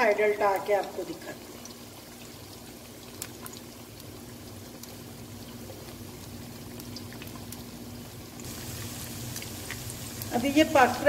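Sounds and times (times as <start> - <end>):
fish sizzling in oil: 0.0 - 11.0.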